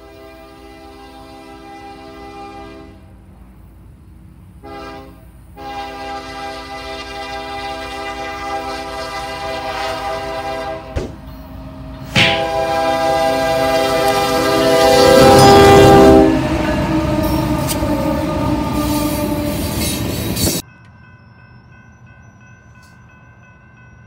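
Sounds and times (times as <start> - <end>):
locomotive horn blasts: 0.0 - 3.2, 4.6 - 20.0
train rumble: 0.0 - 24.0.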